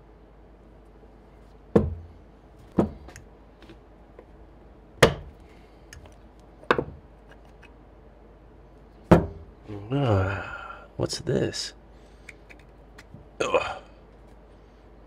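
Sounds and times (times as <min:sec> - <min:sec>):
sharp knocks on motor casing: 0:01.7 - 0:02.1, 0:05.0 - 0:05.4.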